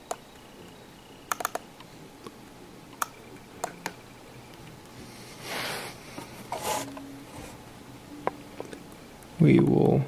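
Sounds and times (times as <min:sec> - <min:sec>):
laptop keyboard keys clicking: 0:01.3 - 0:01.6.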